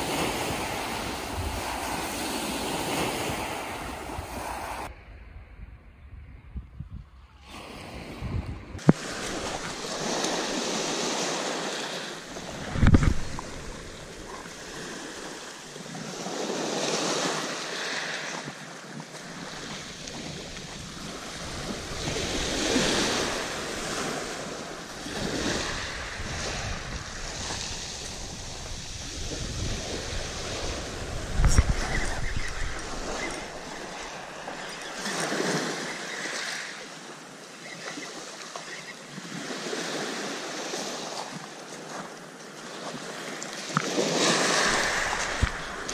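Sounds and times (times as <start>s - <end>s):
waves washing over shingle: 0.0s - 4.9s, 8.8s - 37.1s, 39.3s - 45.9s
wind on microphone: 0.0s - 16.7s, 19.4s - 35.8s, 43.8s - 45.9s.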